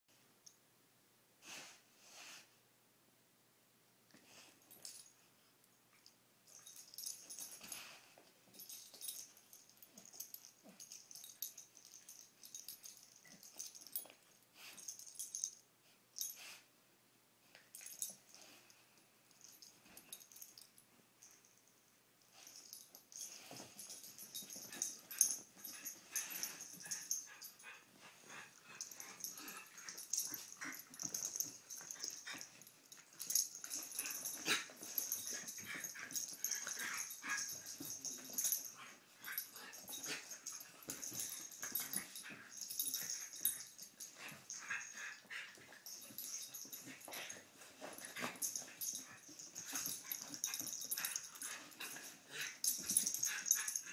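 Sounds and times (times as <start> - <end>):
dogs play-fighting vocal noises: 22.4 - 53.9.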